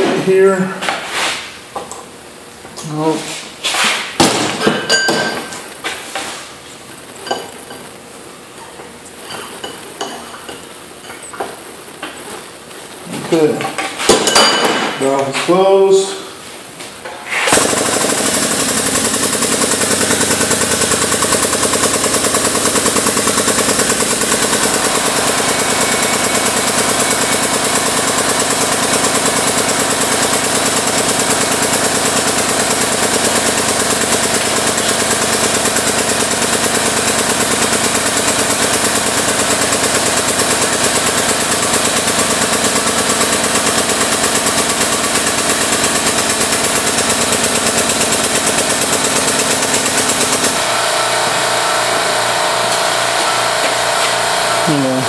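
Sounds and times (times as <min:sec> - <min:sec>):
air-driven pump chattering: 0:17.4 - 0:55.0.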